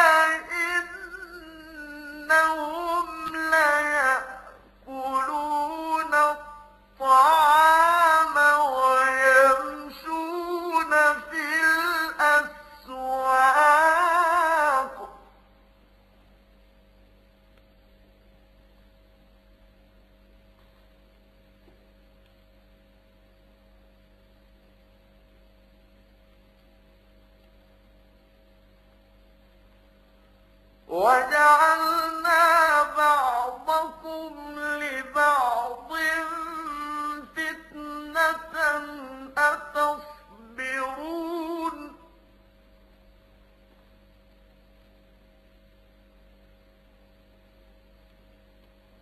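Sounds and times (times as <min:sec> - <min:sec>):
man chanting recitation: 0:00.0 - 0:15.3, 0:30.9 - 0:42.2
faint electrical hum: 0:00.0 - 0:49.0.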